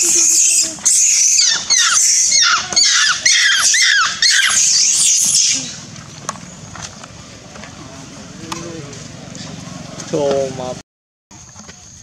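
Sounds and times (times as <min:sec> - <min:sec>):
monkey screaming: 0:00.0 - 0:06.0.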